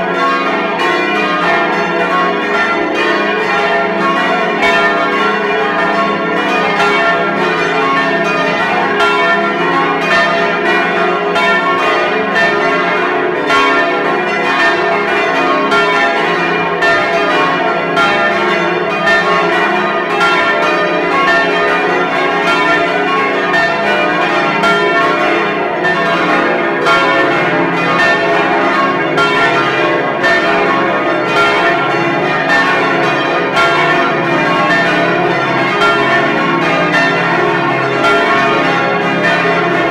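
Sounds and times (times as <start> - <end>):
large church bells ringing: 0.0 - 39.9.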